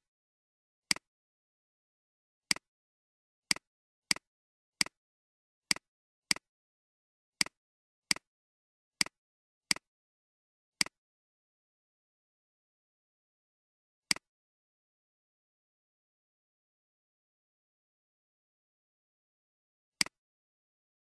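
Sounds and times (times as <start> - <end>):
computer mouse clicks: 7.4 - 8.3, 9.0 - 9.9.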